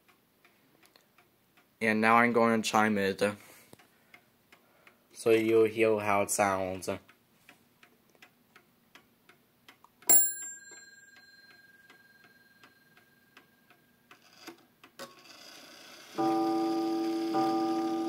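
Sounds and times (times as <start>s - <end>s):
clock ticking: 0.0s - 15.6s, 16.2s - 18.0s
clock click: 7.8s - 18.0s
clock bell striking: 10.1s - 12.5s, 16.2s - 18.0s
clock gong striking: 16.2s - 18.0s.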